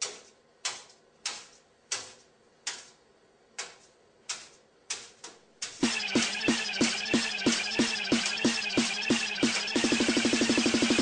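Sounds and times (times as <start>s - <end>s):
electronic dance music: 5.8s - 11.0s.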